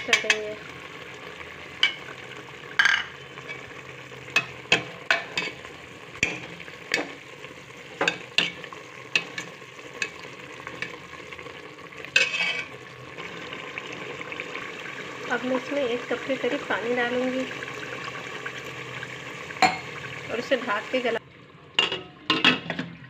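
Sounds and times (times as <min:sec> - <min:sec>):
curry sizzling: 0:00.0 - 0:23.0
ladle clanking against pot: 0:21.8 - 0:22.9.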